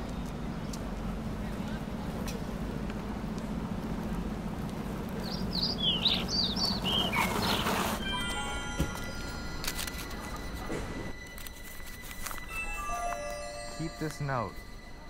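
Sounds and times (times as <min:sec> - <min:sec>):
longboard wheels rumbling on asphalt: 0:00.0 - 0:08.1
bird chirping: 0:05.2 - 0:07.9
board scraping to a stop: 0:06.8 - 0:08.0
music tones: 0:08.0 - 0:15.0.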